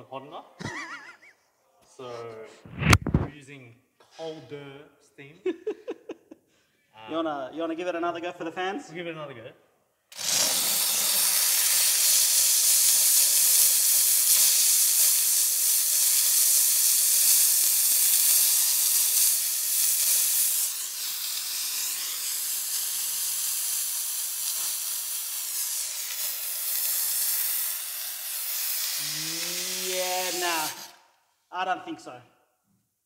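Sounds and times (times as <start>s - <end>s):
steam cleaner hissing: 10.1s - 31.0s.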